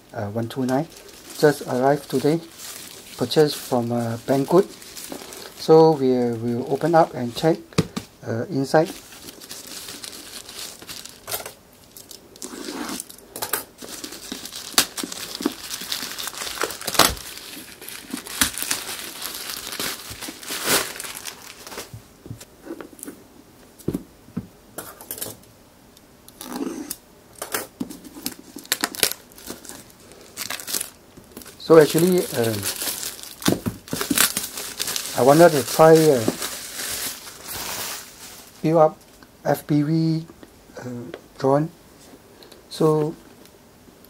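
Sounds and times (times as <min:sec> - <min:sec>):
plastic bag tearing and crinkling: 0:00.4 - 0:07.6, 0:08.6 - 0:22.0, 0:28.0 - 0:38.6.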